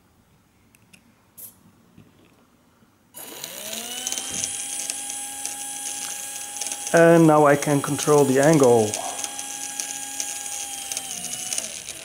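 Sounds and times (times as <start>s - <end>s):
electric motors whirring buzz: 3.2s - 12.0s
rising motor whine: 3.2s - 12.0s.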